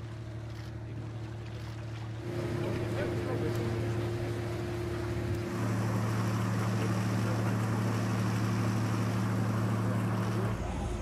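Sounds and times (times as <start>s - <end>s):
boat engine humming: 0.0s - 11.0s
water wash: 0.0s - 11.0s.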